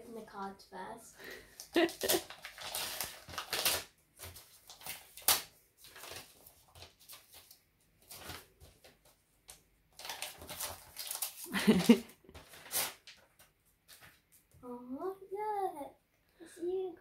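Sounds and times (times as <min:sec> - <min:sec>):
paper envelope tearing and rustling: 0:01.6 - 0:09.1, 0:09.9 - 0:14.2.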